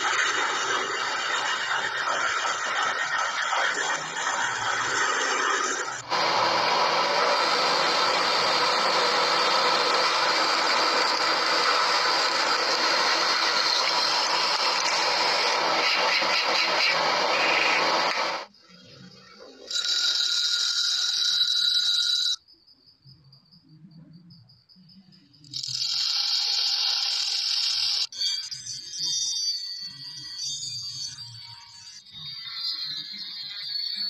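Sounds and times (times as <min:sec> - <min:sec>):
power tool running: 0:00.0 - 0:18.5.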